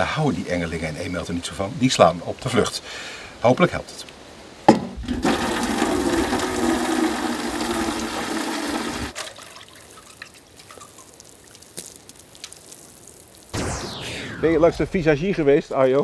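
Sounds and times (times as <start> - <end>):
water pouring into metal can: 5.0 - 12.8.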